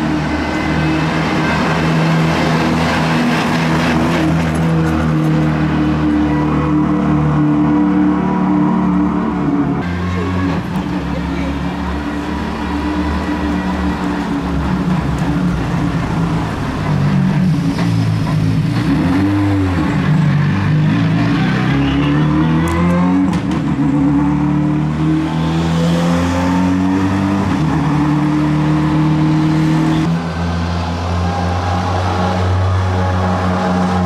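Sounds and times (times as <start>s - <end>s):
rally car engines revving: 0.0s - 34.0s
car accelerating away: 14.7s - 34.0s.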